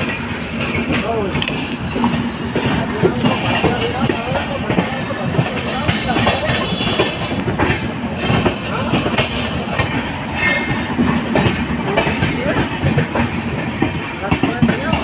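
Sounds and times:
train wheels clattering on rails: 0.0 - 15.0
high wheel squeal: 10.3 - 10.9.

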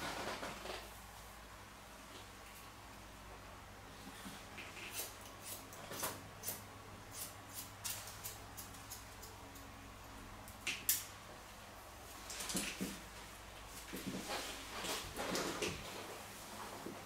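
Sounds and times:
scissors snipping hair: 4.7 - 9.7.

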